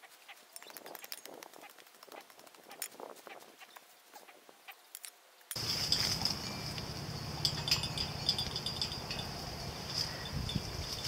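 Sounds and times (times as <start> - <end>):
piglet rooting in dirt and gravel: 0.0 - 11.0
steady high hiss: 4.8 - 11.0.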